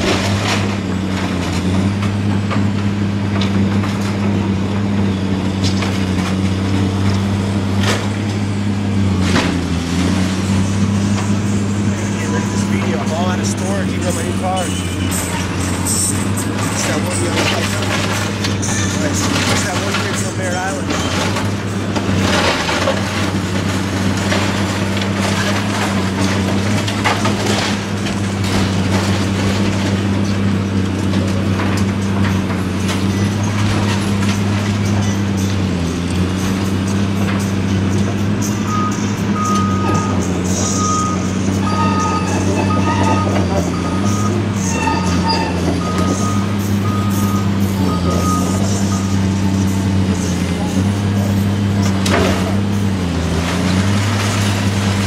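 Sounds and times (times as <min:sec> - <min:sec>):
diesel engine running: 0:00.0 - 0:55.0
concrete cracking and crumbling: 0:16.4 - 0:36.4, 0:50.3 - 0:55.0
backup alarm beeping: 0:38.7 - 0:49.3.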